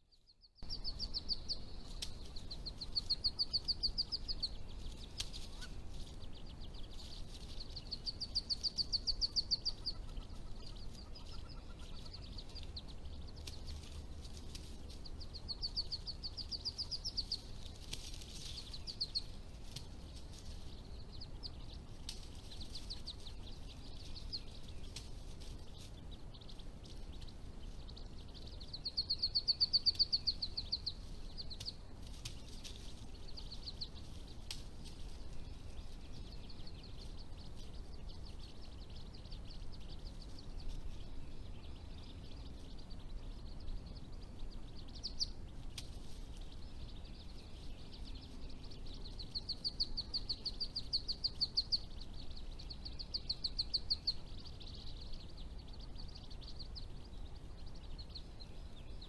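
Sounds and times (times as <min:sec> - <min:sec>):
faint forest background: 0:00.0 - 0:59.0.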